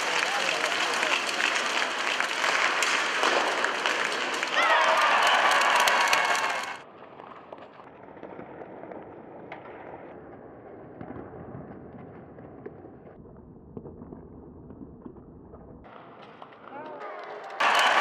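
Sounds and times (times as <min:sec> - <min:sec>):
crowd cheering and clapping: 0:00.0 - 0:06.8, 0:17.4 - 0:18.0
hockey sticks and puck clacking: 0:00.0 - 0:12.8, 0:15.9 - 0:18.0.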